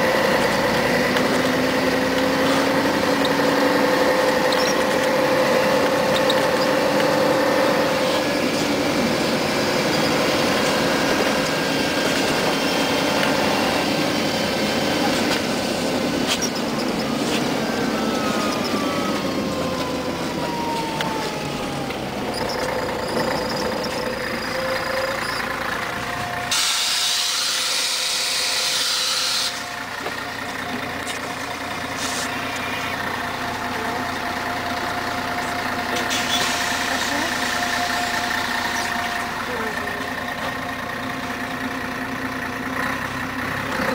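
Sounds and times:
bus diesel engine: 0.0 - 43.9
compressed air hiss: 26.5 - 29.6, 31.9 - 32.4.

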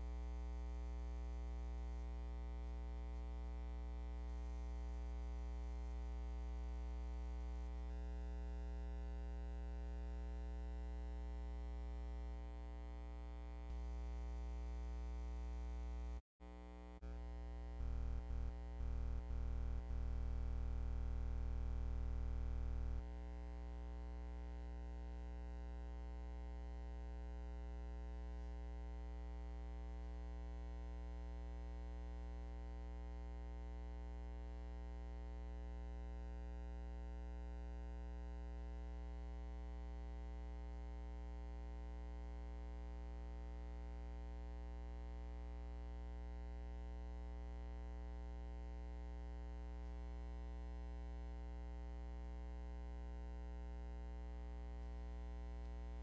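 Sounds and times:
electrical hum: 13.8 - 23.1.

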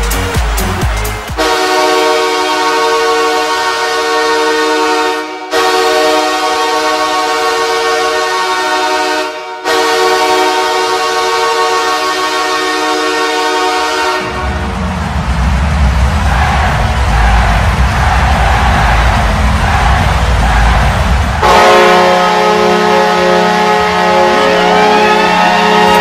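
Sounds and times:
music with a heavy beat: 0.0 - 2.3, 14.9 - 21.5
goal horn blasts: 1.3 - 14.6, 21.4 - 26.0.

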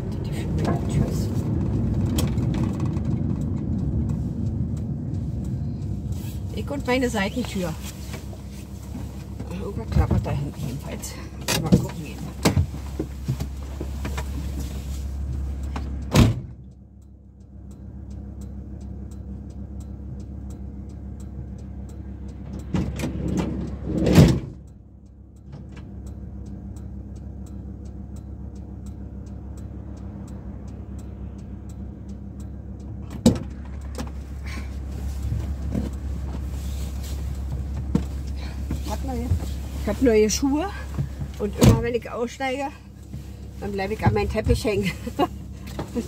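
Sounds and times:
engine idle hum: 0.0 - 46.0
outside rumble: 0.0 - 46.0
van door slamming: 16.1 - 16.5, 24.0 - 24.6
sliding door rolling and slamming: 22.8 - 24.6.

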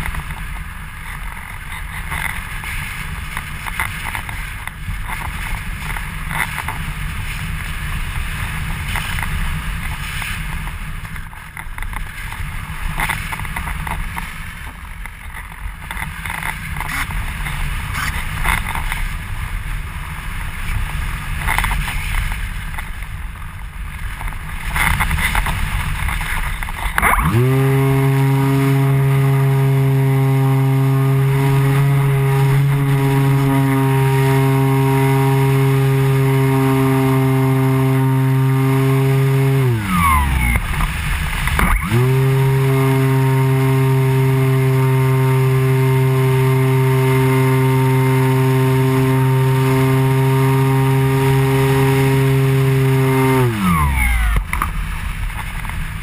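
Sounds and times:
motor and propeller spinning: 0.0 - 56.0
airflow noise: 15.9 - 56.0.

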